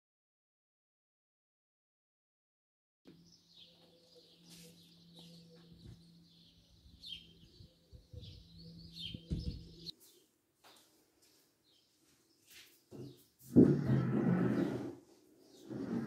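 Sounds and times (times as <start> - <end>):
small birds chirping: 3.1 - 13.5
steady low hum: 3.2 - 10.0
low thumps: 9.1 - 9.9.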